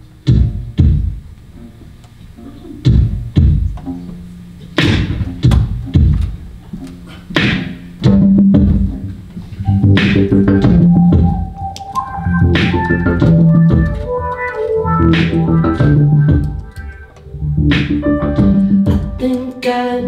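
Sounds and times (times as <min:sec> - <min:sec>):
heavy low thumps: 0:02.8 - 0:03.9, 0:04.8 - 0:06.6, 0:07.4 - 0:19.2
keyboard: 0:04.8 - 0:20.0
sustained organ chord: 0:08.1 - 0:19.3.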